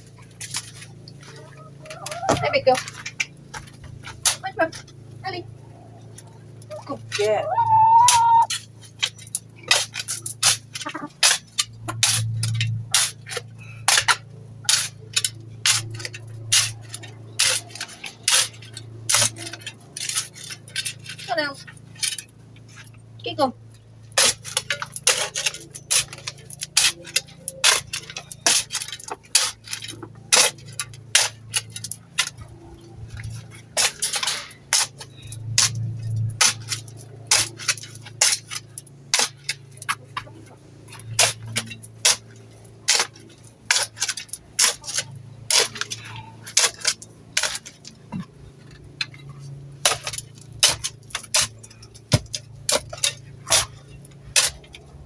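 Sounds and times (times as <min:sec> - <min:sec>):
steady low hum: 0:00.0 - 0:55.0
metal tool clinking in stony soil: 0:24.2 - 0:40.0.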